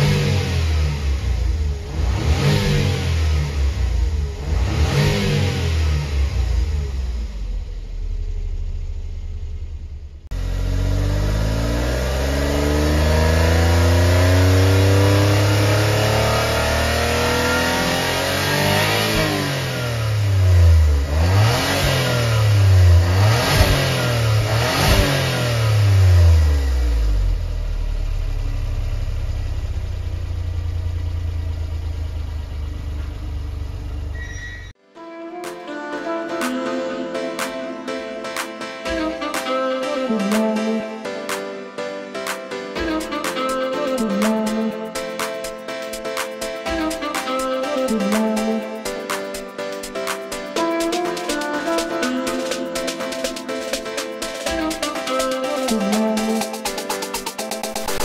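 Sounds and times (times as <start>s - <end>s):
car engine revving: 0.0s - 34.2s.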